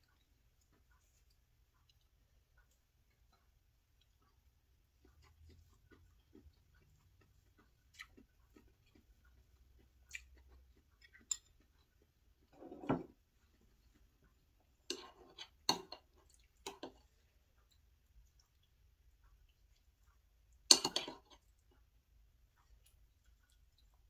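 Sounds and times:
chewing: 0.0 - 24.0
dishes and cutlery clinking: 11.2 - 11.6, 12.5 - 13.2, 14.9 - 17.0, 20.7 - 21.4.

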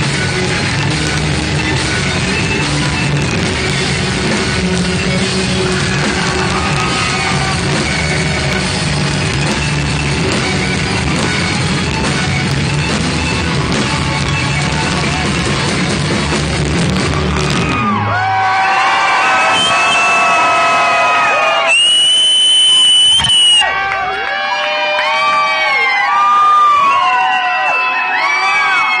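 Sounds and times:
live rock band playing: 0.0 - 18.1.

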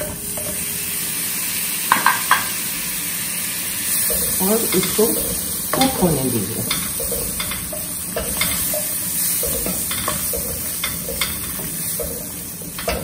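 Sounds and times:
potatoes frying in hot oil: 0.0 - 13.0.

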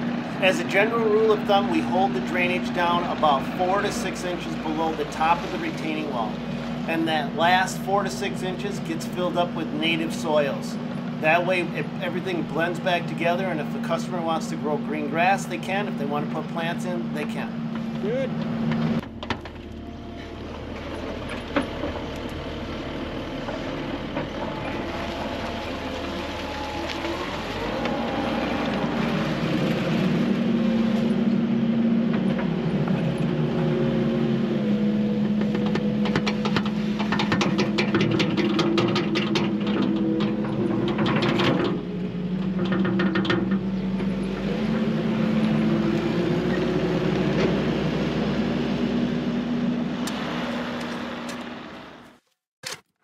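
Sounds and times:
diesel engine under load: 0.0 - 53.0
rapid clicking and rattling: 35.8 - 41.8.

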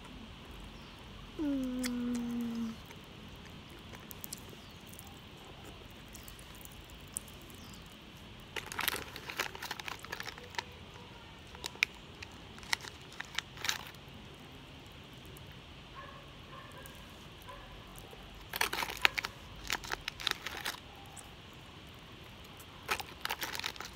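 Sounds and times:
plastic wrapper crinkling: 8.5 - 14.0, 18.3 - 21.1, 22.8 - 23.9.

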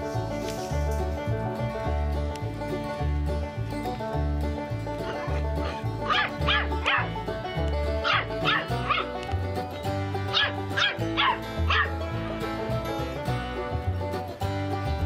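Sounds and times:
puppy yapping: 5.1 - 7.1, 8.0 - 9.2, 10.3 - 11.9.

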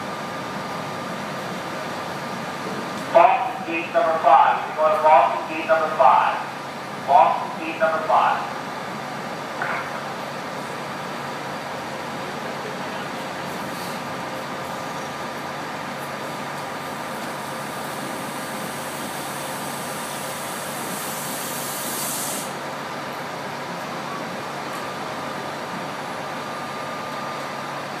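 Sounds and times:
air brake hiss: 13.7 - 14.1, 18.5 - 22.6.

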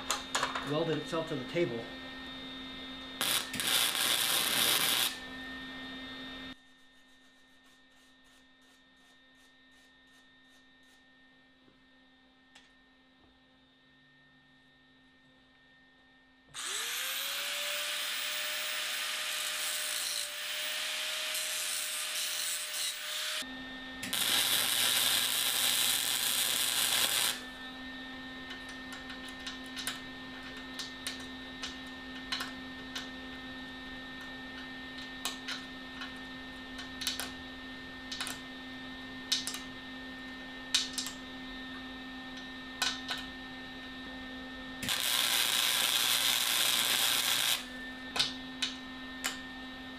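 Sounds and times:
welder humming: 0.0 - 6.5, 16.5 - 33.1, 44.8 - 49.9
weld crackling: 3.2 - 5.2, 24.0 - 27.4, 44.8 - 47.7
angle grinder whining: 3.2 - 5.3, 16.6 - 27.6, 44.8 - 48.0.

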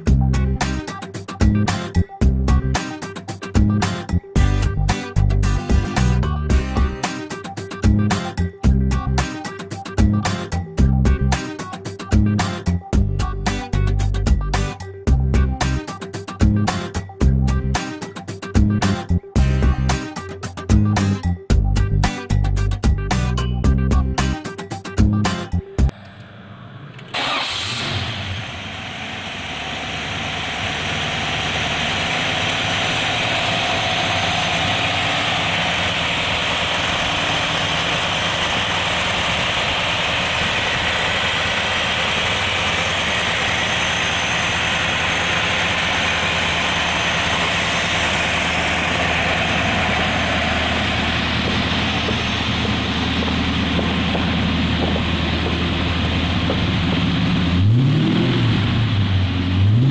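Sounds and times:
car engine starting and idling: 25.8 - 59.9.

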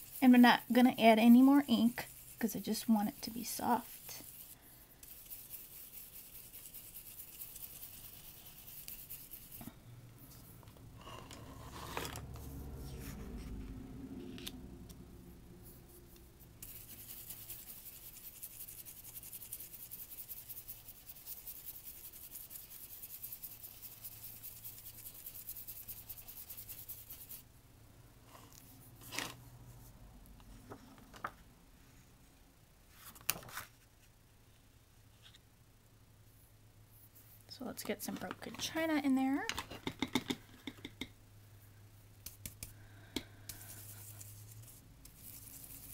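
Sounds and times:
brush scrubbing over a stencil: 0.0 - 10.6, 15.6 - 27.4, 43.5 - 45.9.

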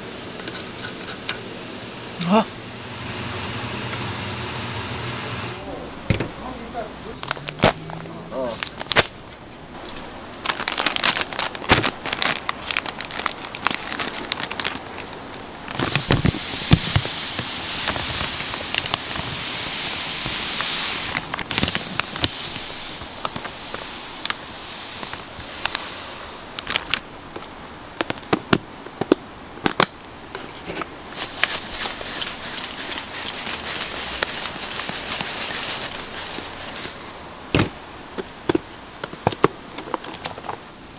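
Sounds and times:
plastic bags crinkling: 7.1 - 9.5, 10.4 - 28.3, 31.0 - 37.1.

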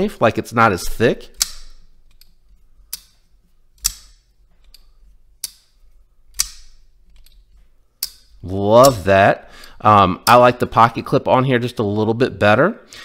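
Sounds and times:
folding knife blade clicking: 1.4 - 3.2, 3.8 - 7.4, 8.0 - 8.3.

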